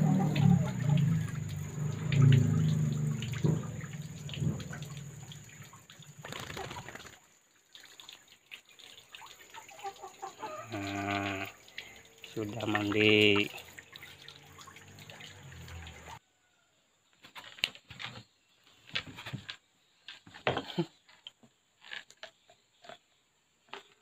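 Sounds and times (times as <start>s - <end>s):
water dripping: 0.0s - 16.2s
water splashing: 0.0s - 16.2s.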